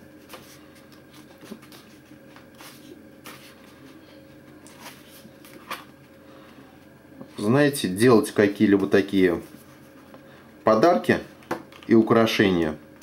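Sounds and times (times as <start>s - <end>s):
paper pages rustling: 0.1s - 6.1s.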